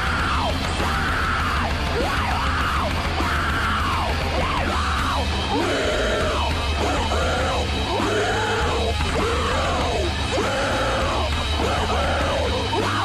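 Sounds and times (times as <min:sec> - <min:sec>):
loud rock music: 0:00.0 - 0:13.0.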